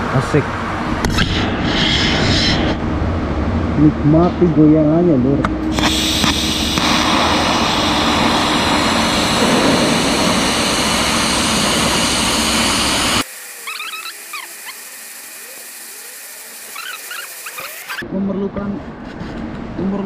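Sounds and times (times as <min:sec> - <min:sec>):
rushing workshop machinery: 0:05.5 - 0:18.0.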